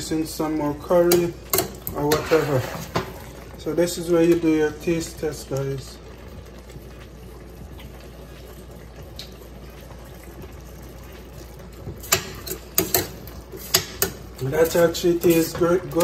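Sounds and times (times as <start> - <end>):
thick stew bubbling: 0.0 - 16.0
spoon scraping metal pot: 1.1 - 3.1.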